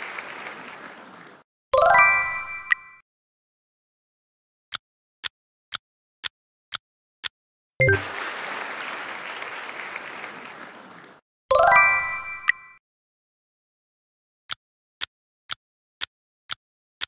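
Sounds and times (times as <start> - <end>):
applause: 0.0 - 1.4, 7.8 - 11.2.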